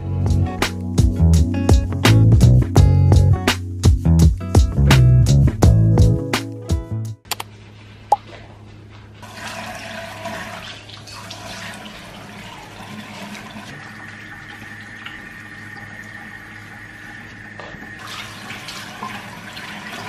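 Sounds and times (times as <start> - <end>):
faucet water running into sink: 9.2 - 20.0.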